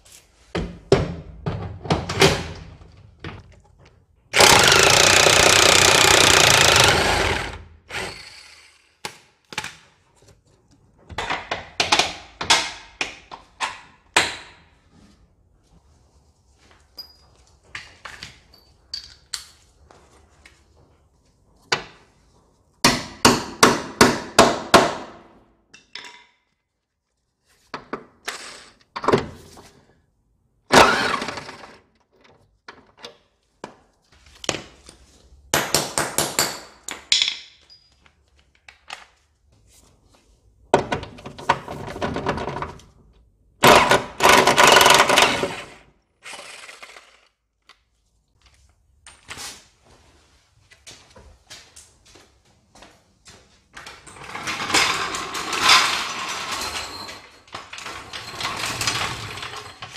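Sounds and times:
impact wrench hammering: 4.4s - 8.1s.

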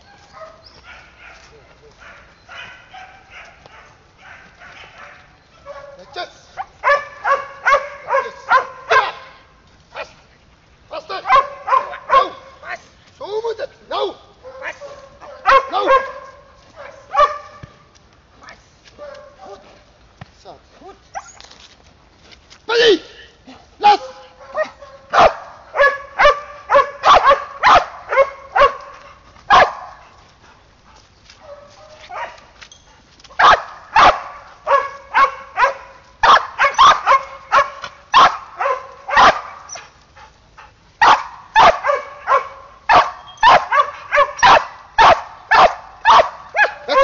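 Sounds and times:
dog barking: 0.0s - 9.4s, 11.1s - 12.6s, 14.4s - 17.8s, 19.0s - 19.8s, 24.0s - 30.2s, 31.4s - 32.5s, 33.4s - 39.9s, 41.0s - 47.0s.

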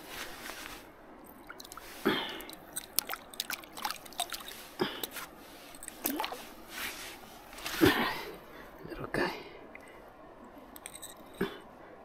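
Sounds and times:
fish splashing in water: 1.5s - 6.6s.

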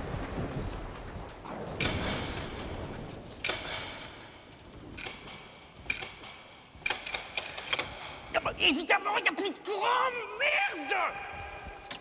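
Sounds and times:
switches clicking: 4.9s - 8.3s.

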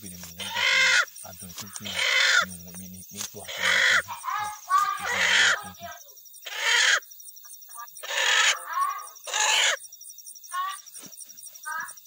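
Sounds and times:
short pitched animal calls: 0.0s - 2.6s, 3.4s - 7.0s, 7.8s - 9.8s
harsh animal squawks: 0.0s - 7.1s, 7.7s - 9.8s, 10.5s - 10.8s
insects chirping: 0.0s - 12.0s.

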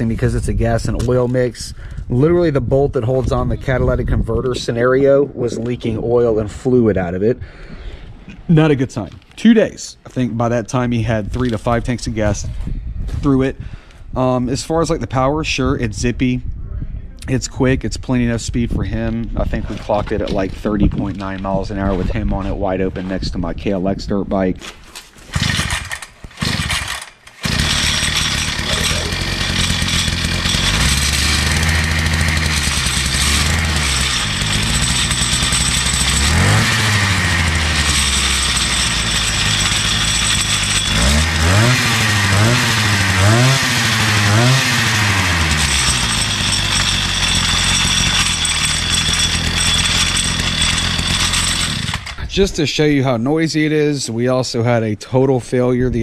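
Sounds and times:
dirt bike engine rattling: 25.3s - 52.8s
engine revving: 25.4s - 52.3s.

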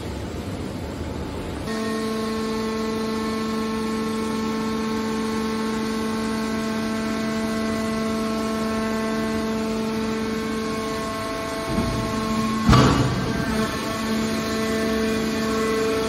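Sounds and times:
hydraulic power unit humming: 0.0s - 16.0s.

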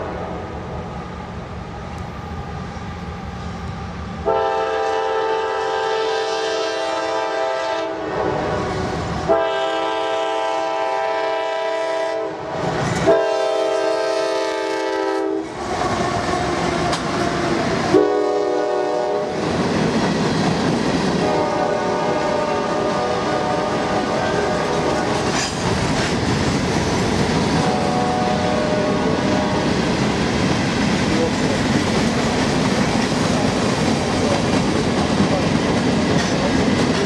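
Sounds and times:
locomotive air horn blasts: 4.2s - 15.6s, 17.9s - 19.4s, 21.2s - 25.2s, 27.6s - 29.7s.

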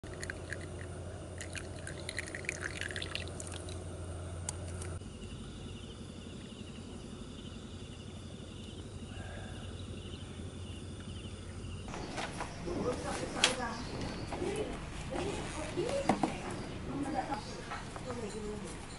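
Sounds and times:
liquid pouring into a wooden cup: 0.0s - 3.8s.

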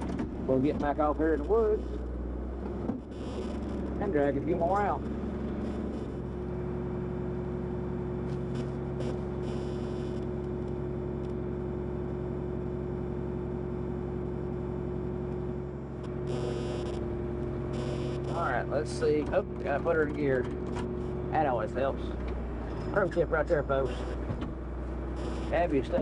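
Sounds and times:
tractor diesel engine droning: 0.0s - 26.0s.

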